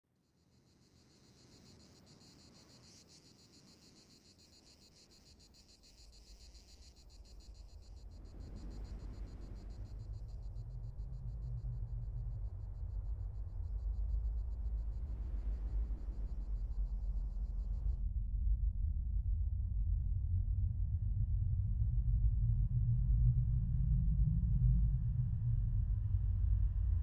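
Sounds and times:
crickets chirping: 0.1 - 18.0
low rumble: 7.1 - 27.0.

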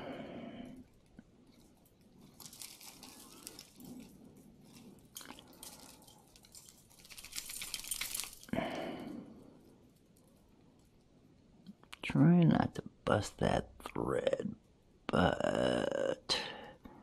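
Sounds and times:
jewelry crinkling and rustling: 0.7 - 11.7.

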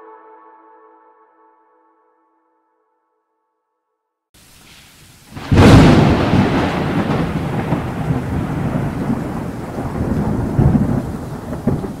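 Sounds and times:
steady rain: 4.4 - 12.0
thunder rolling: 5.3 - 12.0.

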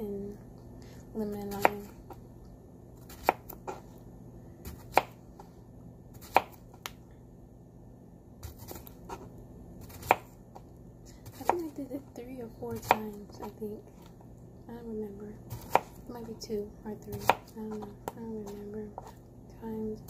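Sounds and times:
knife slicing cucumber: 1.3 - 2.2, 3.0 - 3.8, 6.1 - 6.9, 8.4 - 10.3, 12.7 - 13.6, 15.5 - 16.0, 17.1 - 19.1.

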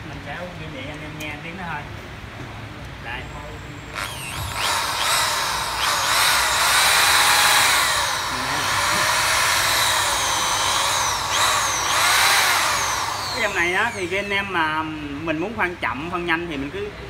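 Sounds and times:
electric drill motor whine: 3.9 - 14.6.

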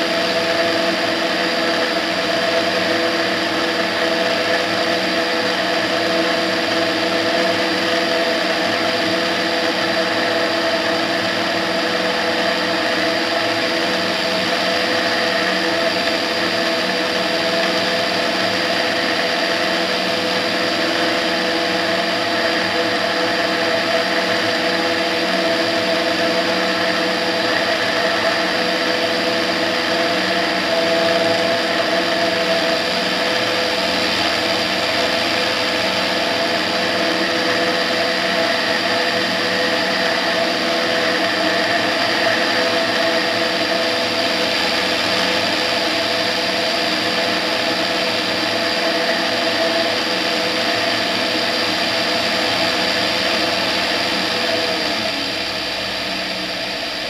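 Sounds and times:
light aircraft engine and propeller: 0.0 - 57.0.

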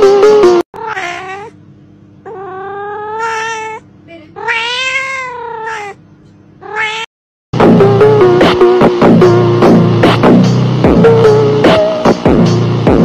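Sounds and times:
cat meowing: 0.8 - 1.6, 2.2 - 6.0, 6.6 - 7.1.

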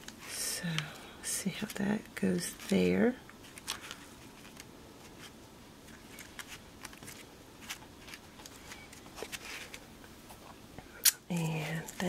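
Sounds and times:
paper rustling and clicking: 3.5 - 9.8.

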